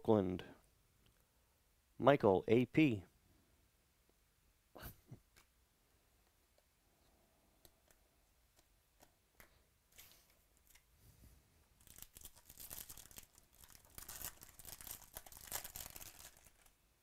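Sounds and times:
foil wrapper tearing and crinkling: 11.8 - 16.7.

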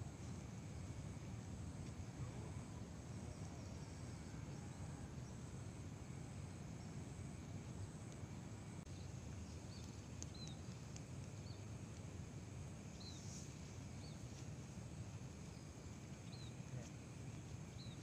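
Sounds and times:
insects trilling: 0.0 - 18.0
low steady rumble: 0.0 - 18.0
bird chirps: 9.7 - 10.6, 15.5 - 16.6.

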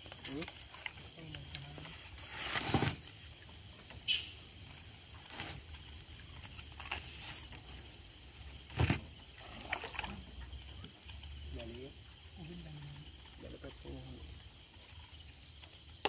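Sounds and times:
night insects chirping: 0.0 - 16.0.

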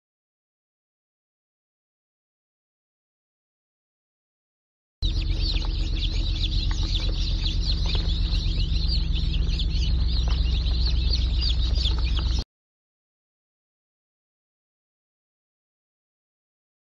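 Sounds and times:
baby chicks peeping: 5.0 - 12.4
steady low hum: 5.0 - 12.4.

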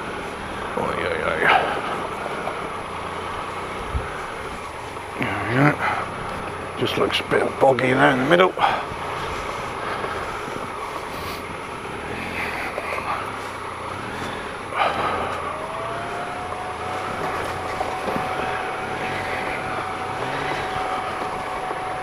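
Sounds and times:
motorcycle engine running: 0.0 - 22.0
steady whine: 0.0 - 22.0.

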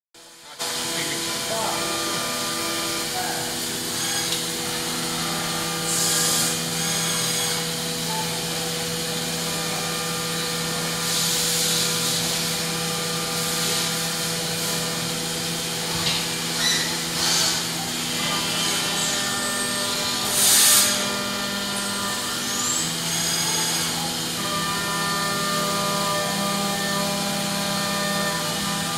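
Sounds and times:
machine hum and whine: 0.2 - 28.9
coolant hiss: 9.1 - 22.0.

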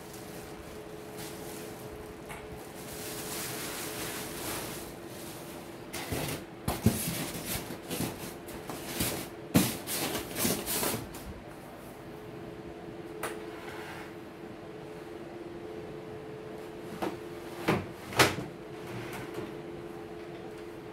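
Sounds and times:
plastic bag rustling: 0.0 - 11.1.

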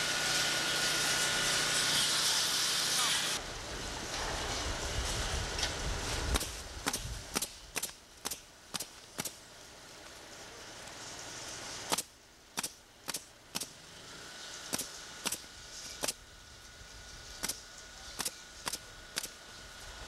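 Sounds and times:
nail gun firing: 6.4 - 9.4, 11.9 - 13.8, 14.7 - 15.4, 16.0 - 16.2, 17.4 - 17.6, 18.2 - 19.4.

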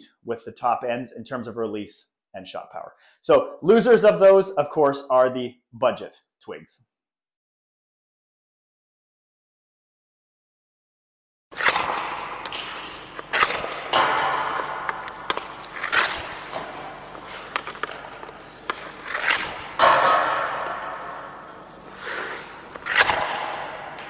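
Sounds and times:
hockey stick cracking on puck: 11.6 - 24.0
puck hitting the boards: 11.6 - 24.0.

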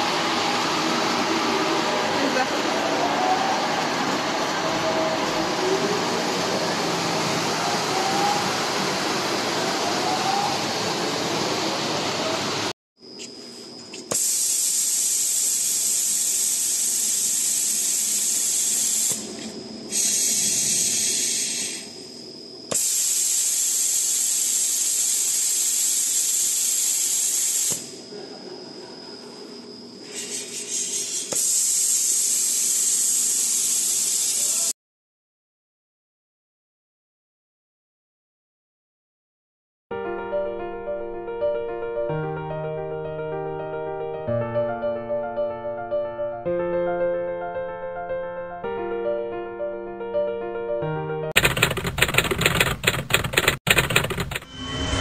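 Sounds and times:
compressed air hissing: 13.9 - 22.0, 22.7 - 28.0, 30.0 - 34.7.

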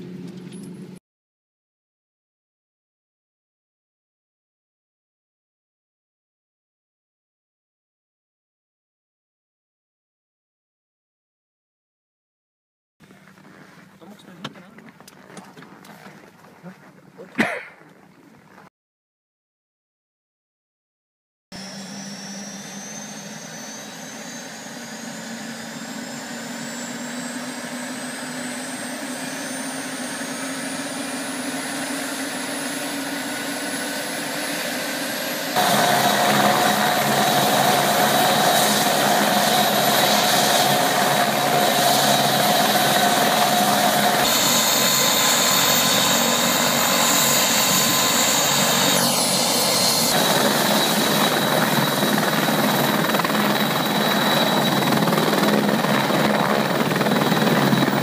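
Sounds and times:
helicopter turbine whine: 0.0 - 1.0, 21.6 - 58.0
helicopter rotor running: 21.6 - 58.0.

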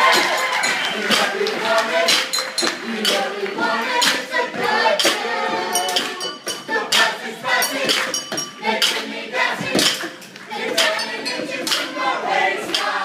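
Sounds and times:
cups and dishes knocking rhythmically: 0.0 - 13.0
group of voices singing: 0.0 - 13.0
cowbell: 2.1 - 3.3, 5.5 - 9.0, 10.9 - 12.0.

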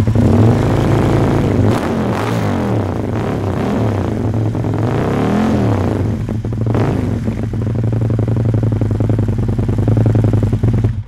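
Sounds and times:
motorcycle engine revving and idling: 0.0 - 11.0.

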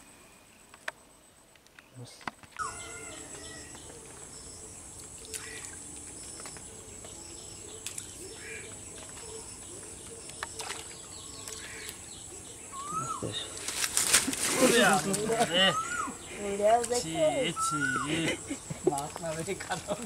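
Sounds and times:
faint bird calls: 1.7 - 13.7, 15.4 - 18.7.

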